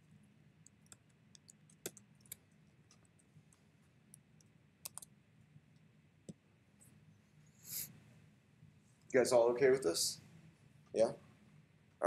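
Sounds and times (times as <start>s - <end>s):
computer keyboard keystrokes: 4.8s - 5.1s.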